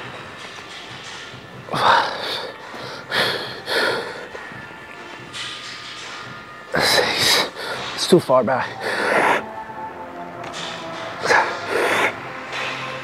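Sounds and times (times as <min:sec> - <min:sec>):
person breathing hard: 0:01.7 - 0:04.4, 0:07.0 - 0:08.0, 0:08.8 - 0:09.5, 0:11.2 - 0:12.2.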